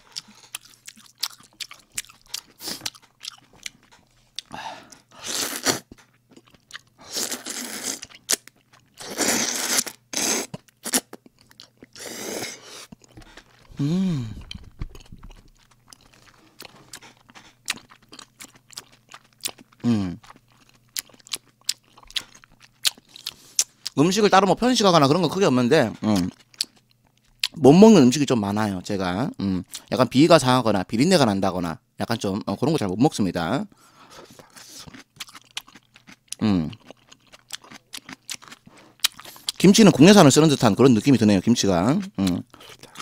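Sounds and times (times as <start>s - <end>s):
wet chewing: 0.1s - 24.0s, 34.1s - 39.6s
noodle slurping: 9.0s - 11.0s
person humming: 13.7s - 14.6s, 19.8s - 20.2s.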